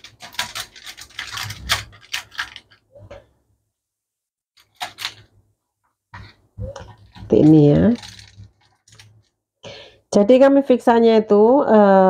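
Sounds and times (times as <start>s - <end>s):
aluminium foil crinkling: 0.0s - 3.1s, 4.6s - 5.4s, 6.2s - 9.4s.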